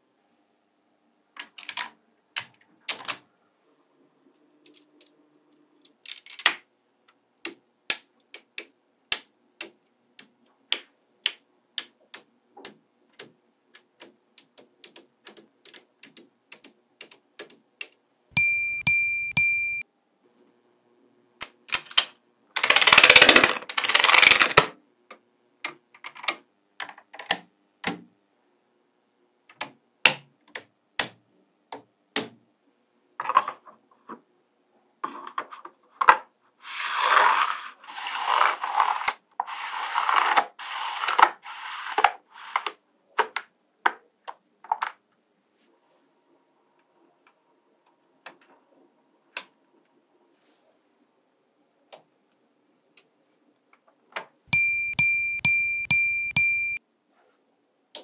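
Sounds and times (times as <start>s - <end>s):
magnetic balls clicking: 7.5s - 19.8s, 54.5s - 56.8s
steady beeping tone: 18.4s - 19.8s, 54.5s - 56.8s
rough rustling scrape: 36.6s - 42.6s.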